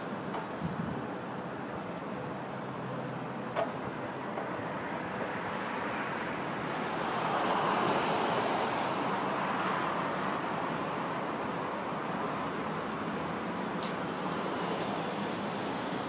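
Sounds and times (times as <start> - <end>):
road traffic noise: 0.0 - 16.0
wind on microphone: 0.6 - 1.1.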